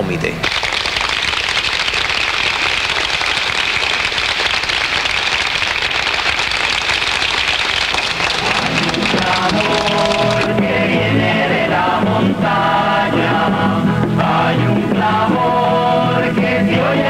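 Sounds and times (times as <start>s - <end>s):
audience applauding: 0.4s - 11.2s
singing with music: 8.4s - 17.0s.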